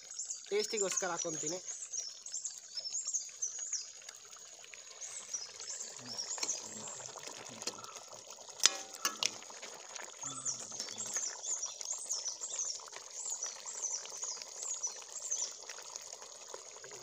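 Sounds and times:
bird chirping: 0.0 - 4.0, 4.9 - 8.1, 10.2 - 15.6
running water: 0.0 - 17.0
ladle clinking against pot: 8.6 - 9.4.

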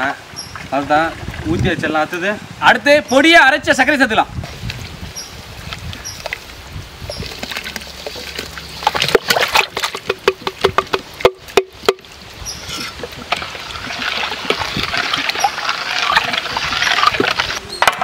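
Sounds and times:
liquid sloshing: 5.7 - 17.6.

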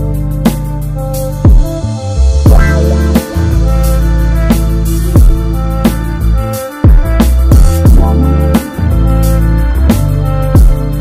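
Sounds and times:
electronic music: 0.0 - 11.0
deep bass drum hits: 6.9 - 8.3.

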